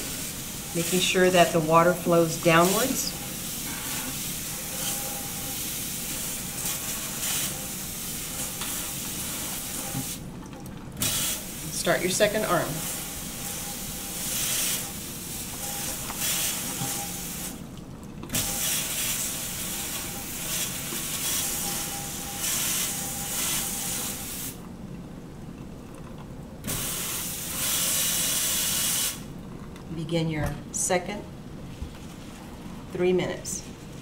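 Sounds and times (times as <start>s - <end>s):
faucet water splashing into sink: 0.0s - 24.4s.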